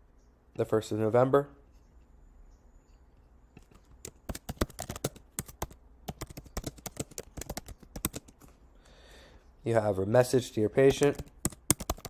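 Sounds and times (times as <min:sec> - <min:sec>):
keyboard typing: 0:03.6 - 0:08.6, 0:10.8 - 0:12.0.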